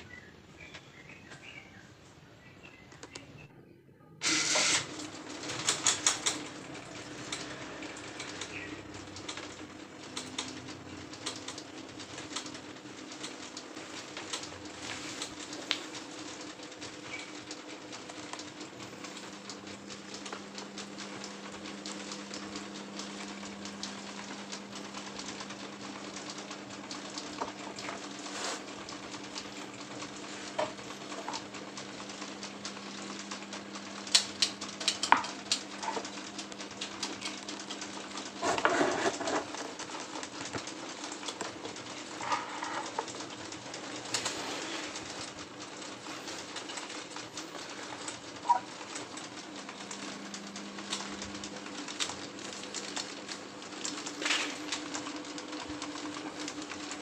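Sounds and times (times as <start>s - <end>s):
scattered clicks: 2.7s - 3.5s, 4.2s - 57.0s
electric fan motor hum: 4.2s - 57.0s.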